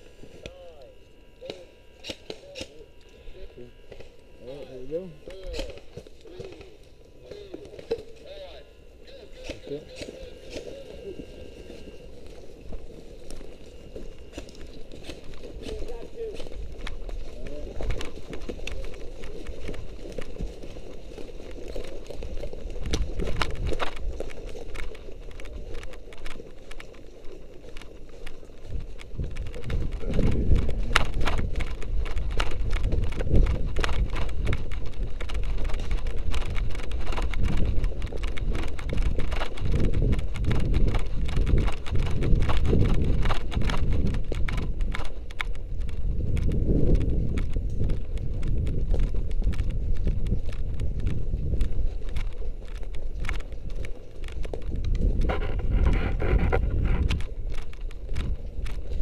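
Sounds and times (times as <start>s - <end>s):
running footsteps on dry leaves: 2.0s - 59.0s
low rumble: 54.8s - 58.8s.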